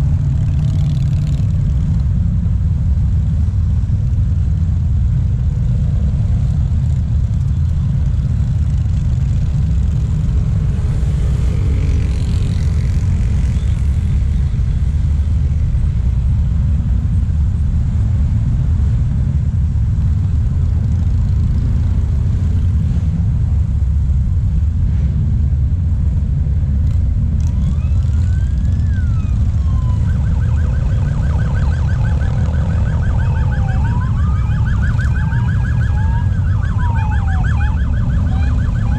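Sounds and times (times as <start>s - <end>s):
highway traffic rumble: 0.0s - 38.9s
motorcycles passing: 0.0s - 38.9s
emergency vehicle siren: 27.4s - 38.9s.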